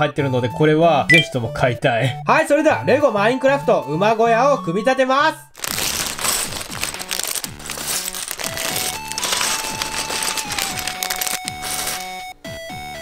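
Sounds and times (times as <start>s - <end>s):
background music: 0.0s - 13.0s
plastic bags crinkling: 5.5s - 12.2s
plastic bricks clattering on table: 5.6s - 12.1s.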